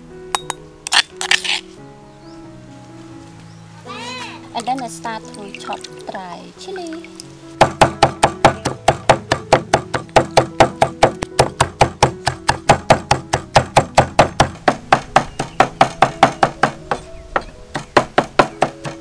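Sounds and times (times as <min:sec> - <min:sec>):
cleaver chopping on wooden board: 0:07.6 - 0:19.0.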